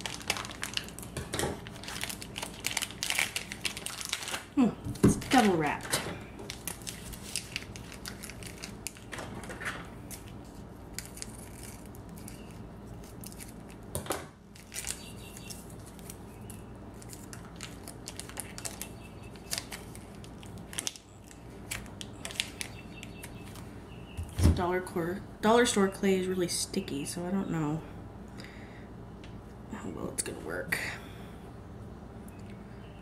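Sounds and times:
plastic wrapping crinkling: 0.0s - 23.7s
steady low hum: 0.0s - 33.0s.

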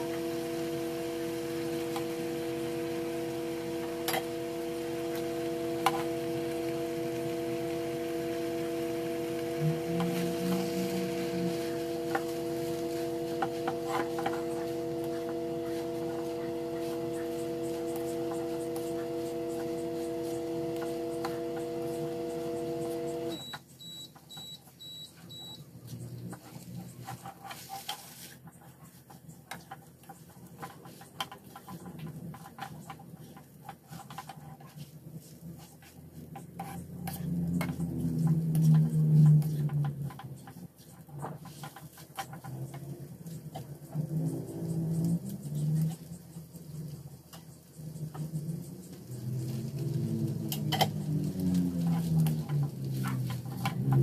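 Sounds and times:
plastic spatula scraping a wok: 0.0s - 23.3s, 26.0s - 54.0s
kitchen appliance humming: 0.0s - 27.0s, 30.3s - 54.0s.

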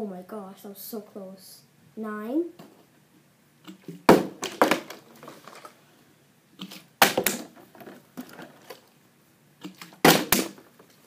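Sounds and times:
plastic bottle knocking and clattering: 3.8s - 5.3s, 7.0s - 8.7s.

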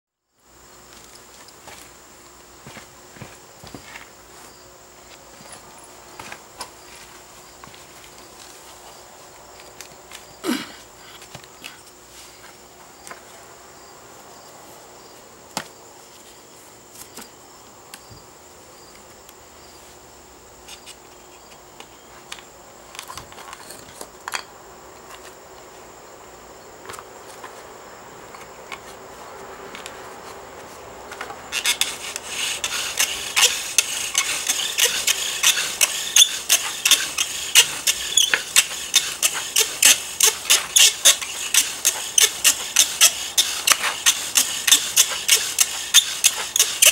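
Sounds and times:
bow drill rasping: 31.2s - 46.9s.

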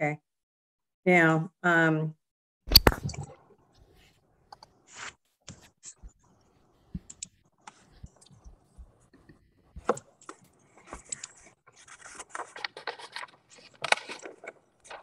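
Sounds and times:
mouse and keyboard clicking: 7.0s - 8.7s, 9.8s - 11.6s.

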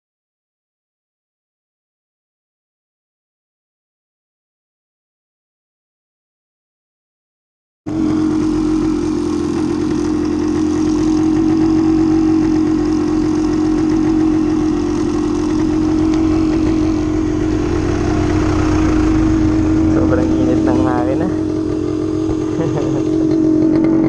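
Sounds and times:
dirt bike engine idling: 7.9s - 24.0s.

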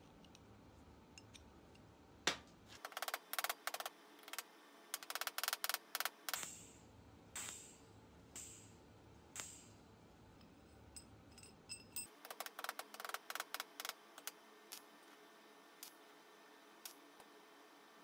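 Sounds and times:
faint metal tinkling: 10.4s - 12.2s.

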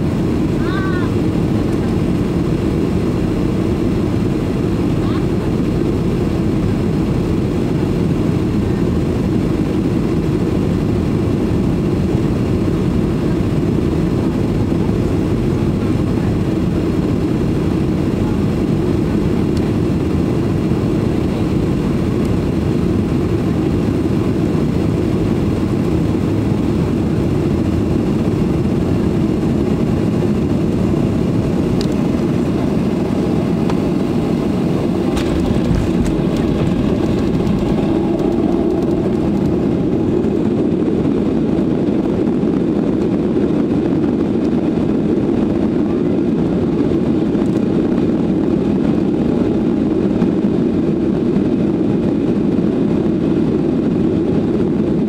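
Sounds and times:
airplane cabin low rumble: 0.0s - 55.0s.

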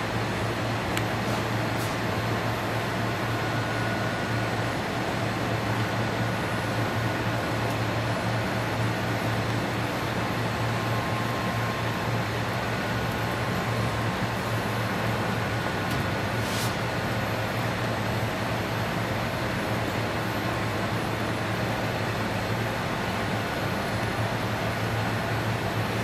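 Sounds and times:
faint high whine: 2.1s - 15.9s.

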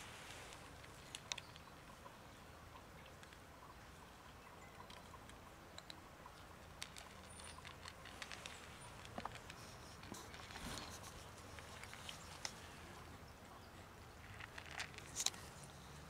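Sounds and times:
low steady hiss: 0.0s - 16.0s
cats crunching dry kibble: 0.2s - 1.7s, 6.6s - 13.0s, 14.2s - 16.0s.

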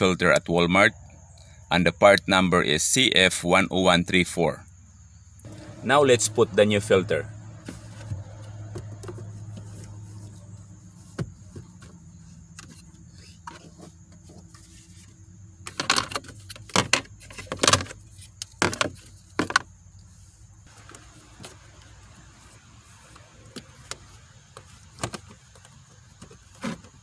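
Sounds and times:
hard plastic clattering: 15.6s - 19.7s, 23.5s - 27.0s.

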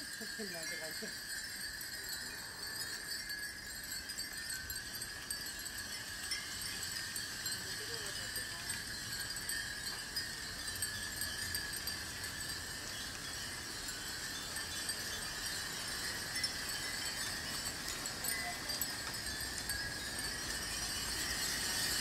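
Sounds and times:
glass wind chimes tinkling: 0.0s - 22.0s.

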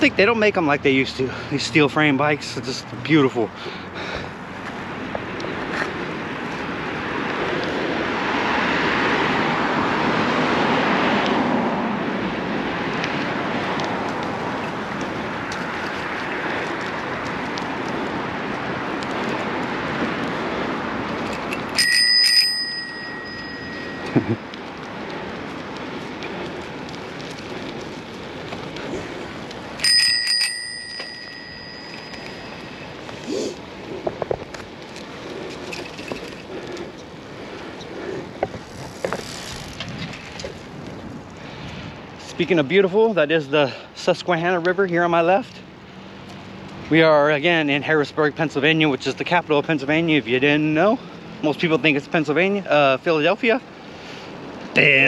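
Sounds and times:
car passing close: 0.3s - 42.8s
bicycle bell ringing: 21.3s - 24.5s, 29.7s - 33.1s.

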